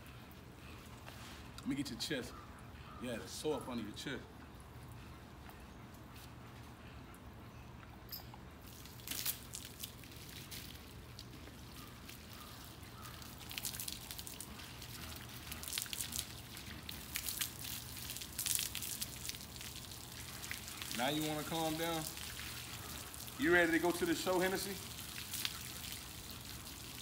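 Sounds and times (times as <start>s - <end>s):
hose water spraying: 8.6s - 27.0s
water splashing and dripping: 8.6s - 27.0s.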